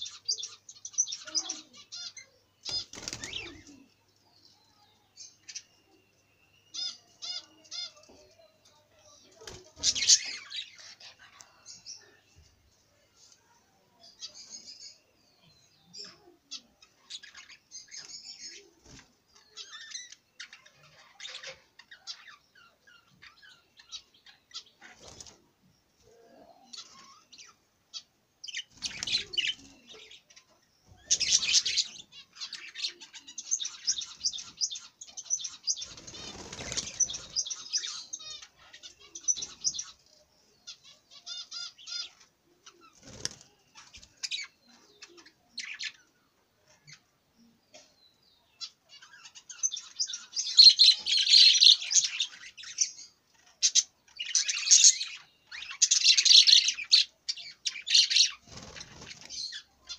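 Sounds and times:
budgerigars chirping and chattering: 0:00.0 - 0:04.0, 0:06.6 - 0:12.4, 0:14.0 - 0:25.6, 0:26.4 - 0:47.1, 0:47.7 - 0:59.9
wings flapping: 0:02.7 - 0:03.6, 0:35.8 - 0:37.4, 0:43.0 - 0:44.1, 0:58.3 - 0:59.4.

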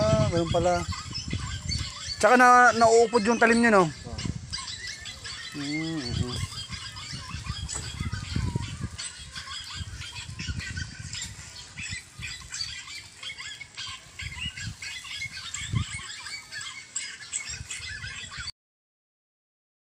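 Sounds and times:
small birds chirping: 0:00.0 - 0:18.5
low bumps on microphone: 0:07.2 - 0:08.9.

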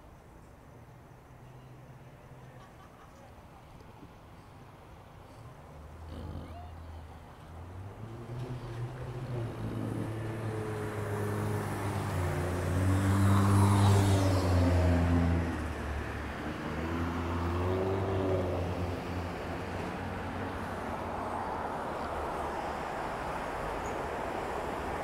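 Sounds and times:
road noise: 0:00.0 - 0:25.0
vehicle engine passing: 0:05.8 - 0:25.0.

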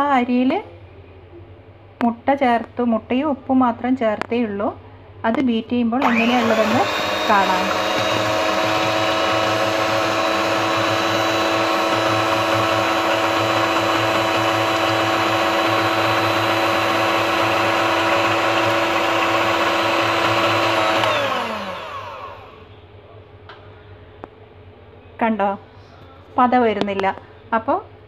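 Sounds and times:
electric hand mixer whining: 0:06.0 - 0:22.7.

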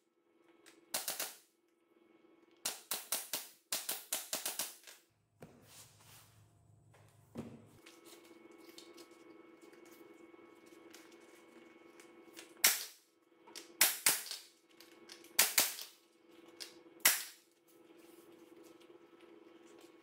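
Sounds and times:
pneumatic staple gun firing: 0:12.6 - 0:13.0, 0:13.8 - 0:14.4, 0:15.4 - 0:15.9, 0:17.0 - 0:17.4.

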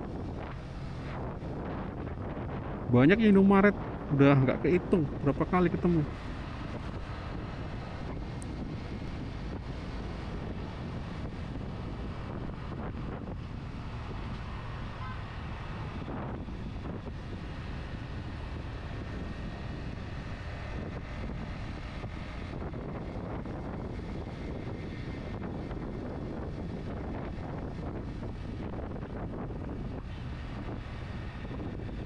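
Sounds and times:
wind noise on microphone: 0:00.0 - 0:32.0.

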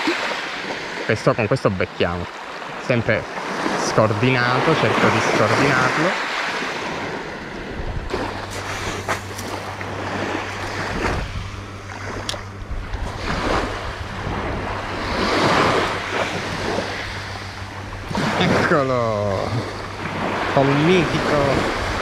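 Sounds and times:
sea waves washing on shore: 0:00.0 - 0:22.0
low steady hum: 0:00.5 - 0:22.0
wind on microphone: 0:04.8 - 0:22.0.

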